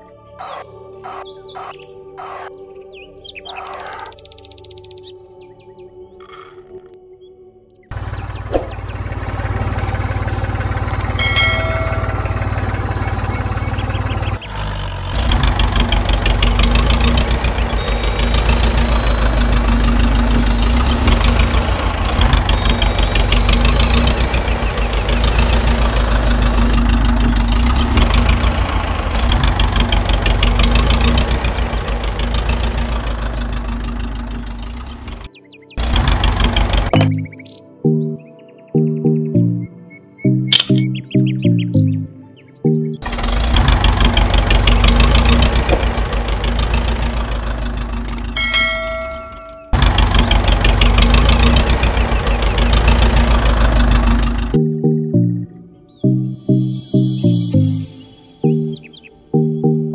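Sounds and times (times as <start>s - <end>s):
diesel engine idling: 7.9s - 37.4s, 42.8s - 59.1s
rising whines: 8.0s - 35.3s, 56.0s - 59.5s.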